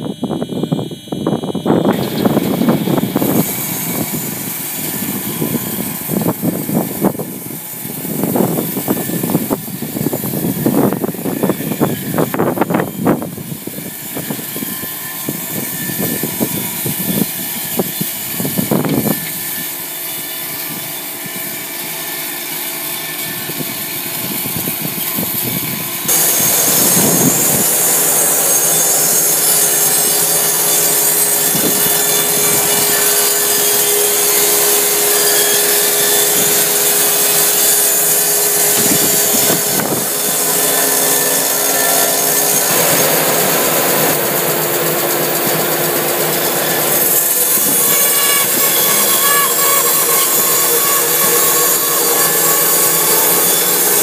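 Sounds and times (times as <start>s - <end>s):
machine hum: 0.0s - 21.1s, 22.9s - 54.0s
band saw blade rasping in wood: 26.1s - 54.0s.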